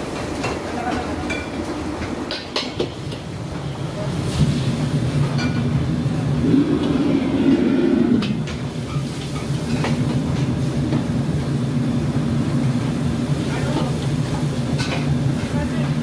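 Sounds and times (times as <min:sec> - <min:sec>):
low rumble of wok burners: 0:00.0 - 0:16.0
utensils clanking on woks: 0:13.7 - 0:16.0.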